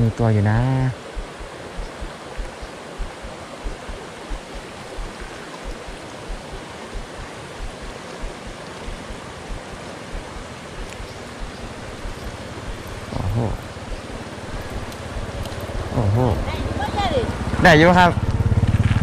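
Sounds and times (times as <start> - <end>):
creek water rushing: 0.0 - 18.8
soft low thumps: 1.1 - 16.0.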